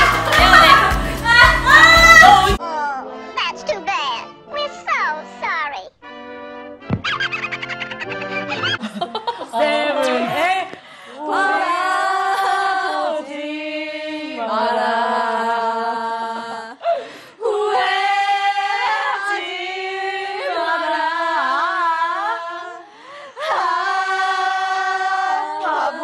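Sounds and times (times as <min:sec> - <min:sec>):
women singing in unison: 0:00.0 - 0:03.2, 0:09.4 - 0:26.0.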